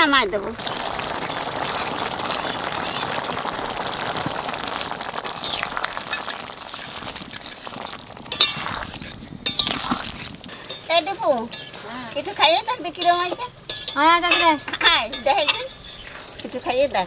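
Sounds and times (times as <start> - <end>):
curry bubbling and sizzling: 0.0 - 17.0
water pouring into pan: 0.4 - 13.5
metal spatula clinking on pan: 10.5 - 11.8, 12.9 - 16.0.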